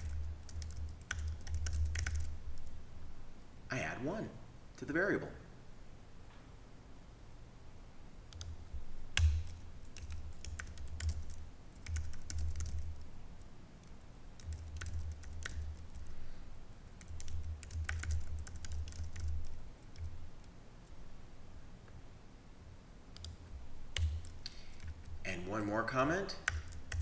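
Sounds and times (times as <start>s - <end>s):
typing on keyboard: 0.0s - 2.7s, 8.3s - 8.6s, 9.2s - 13.0s, 14.4s - 16.1s, 17.0s - 20.5s, 23.2s - 25.2s, 26.3s - 27.0s.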